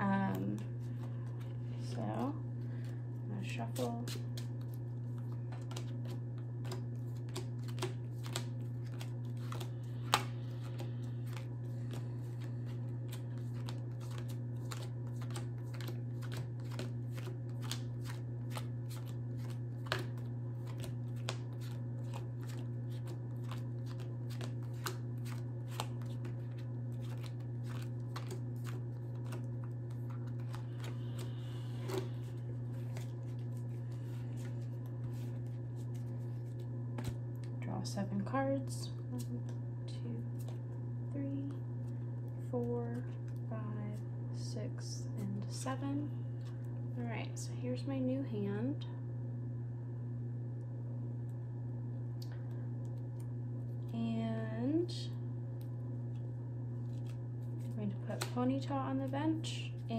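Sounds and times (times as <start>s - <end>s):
cards being shuffled: 0.0s - 37.6s, 56.8s - 58.4s
constant low hum: 0.0s - 59.9s.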